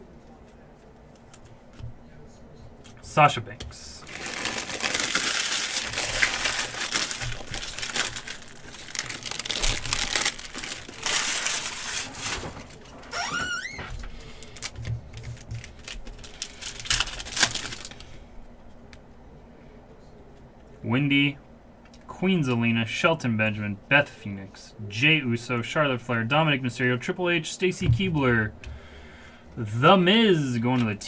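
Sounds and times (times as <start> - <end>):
foil wrappers crinkling and tearing: 4.0 - 18.2.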